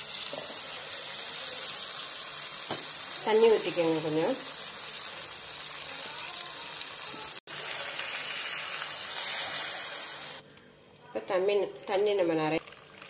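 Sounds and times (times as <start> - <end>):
water pouring into pan: 7.5 - 10.4, 12.6 - 13.0.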